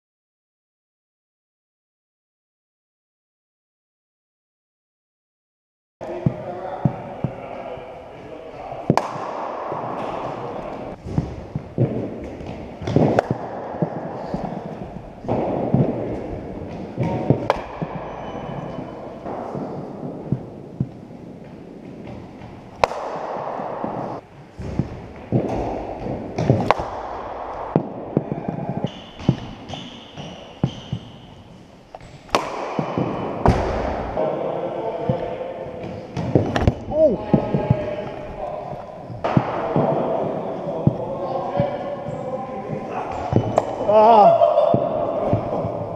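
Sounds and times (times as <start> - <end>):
cricket balls hitting bats: 6.0 - 45.9
cricket ball hitting bat: 8.9 - 10.5, 11.1 - 20.5, 22.7 - 29.8, 32.3 - 34.2
balls thudding on matting: 21.9 - 31.2, 31.9 - 34.2, 34.9 - 41.8.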